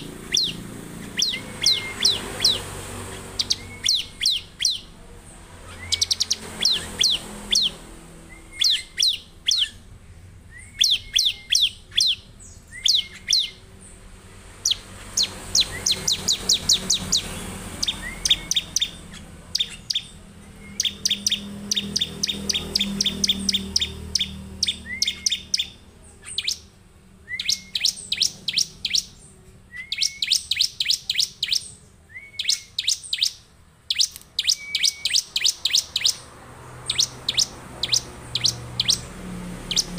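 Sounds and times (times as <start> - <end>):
small bird singing sharp chips: 0.0 - 39.9.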